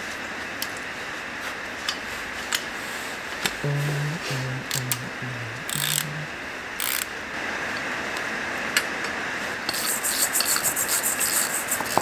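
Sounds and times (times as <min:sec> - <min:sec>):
fast ratchet clicking: 0:05.7 - 0:06.1, 0:06.8 - 0:07.1, 0:09.7 - 0:12.0
tool scraping on metal: 0:09.7 - 0:12.0.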